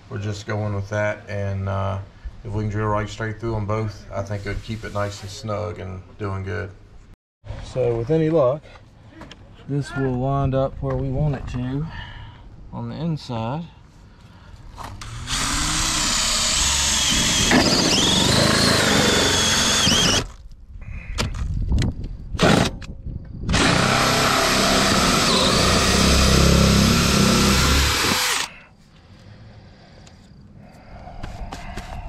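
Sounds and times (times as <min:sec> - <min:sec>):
drill hole saw cutting metal: 0:15.0 - 0:20.3, 0:23.5 - 0:28.5.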